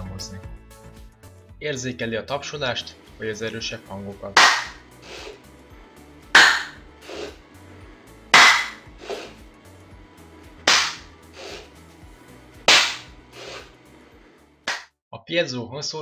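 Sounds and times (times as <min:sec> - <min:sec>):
sharp hand claps: 0:04.4 - 0:04.8, 0:06.4 - 0:06.8, 0:08.4 - 0:08.8, 0:10.7 - 0:11.1, 0:12.7 - 0:13.1, 0:14.7 - 0:14.9.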